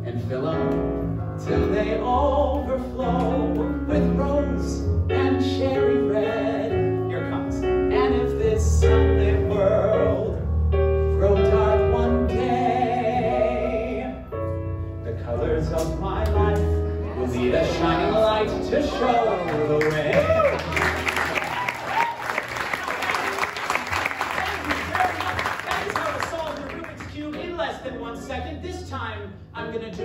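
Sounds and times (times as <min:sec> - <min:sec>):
man singing: 0:00.0 - 0:10.5, 0:11.1 - 0:14.3, 0:15.1 - 0:19.7
piano and bass accompaniment: 0:00.0 - 0:30.0.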